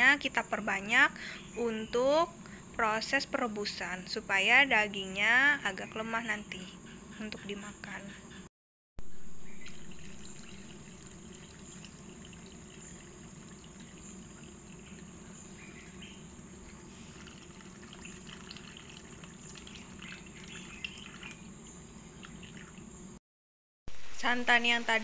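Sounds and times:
liquid trickling into a pot: 9.4s - 21.5s, 22.1s - 22.9s.

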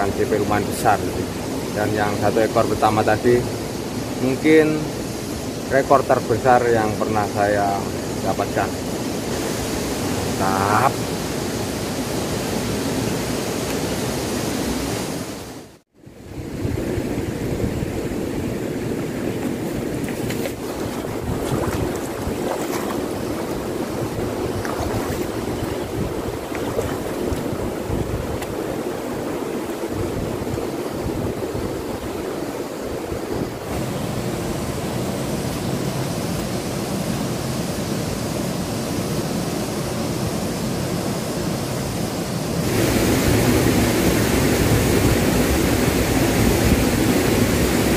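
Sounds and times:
wind on microphone: 16.2s - 34.6s
river water rushing: 17.5s - 47.9s.

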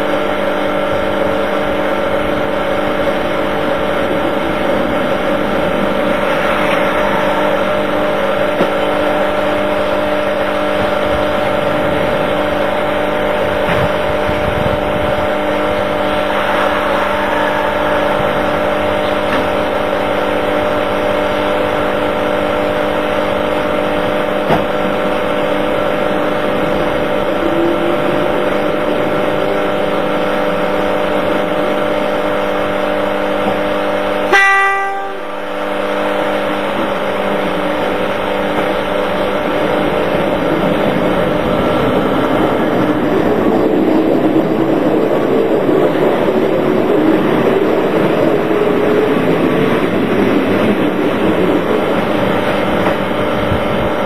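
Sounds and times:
electric train humming: 0.0s - 54.0s
train horn blast: 34.2s - 36.8s.

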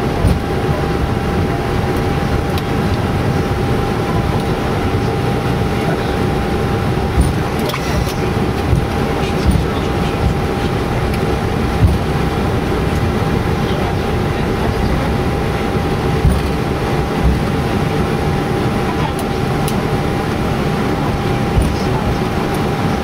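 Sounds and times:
aircraft cabin rumble and hum: 0.0s - 23.0s
constant whine: 0.0s - 23.0s
dull thumps from wheels: 0.2s - 0.6s, 7.1s - 12.3s, 16.1s - 17.7s, 21.5s - 22.7s.

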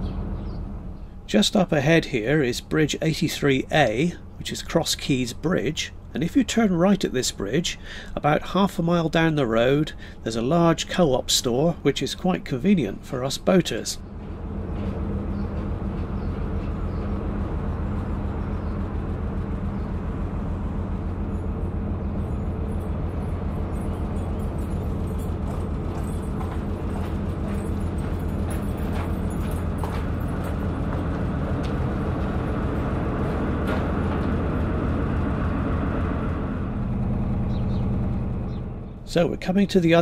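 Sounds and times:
boat engine throbbing: 0.0s - 40.0s.

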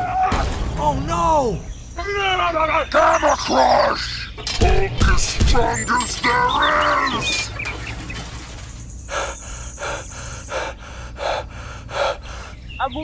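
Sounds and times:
rhythmic pulsing: 4.4s - 12.6s
voiced gasp: 9.1s - 12.6s.

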